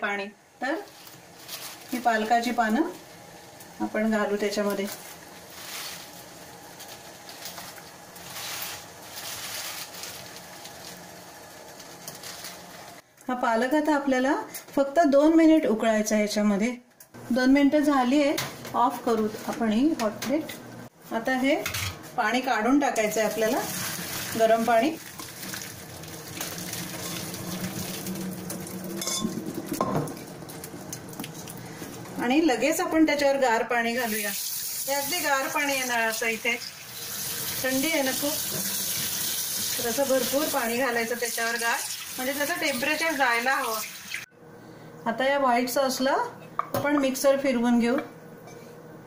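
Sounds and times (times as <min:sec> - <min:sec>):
water boiling in a saucepan: 0:00.4 - 0:13.0, 0:23.0 - 0:32.8, 0:33.8 - 0:44.3
water pouring into steel sink: 0:23.3 - 0:31.6, 0:36.6 - 0:44.3
pan clinking against strainer: 0:29.0 - 0:30.0.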